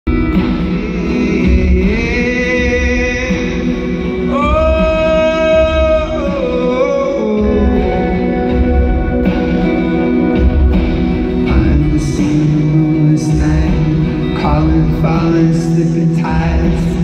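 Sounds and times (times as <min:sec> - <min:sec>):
acoustic guitar: 0:00.1 - 0:17.0
person singing long notes: 0:00.4 - 0:10.4.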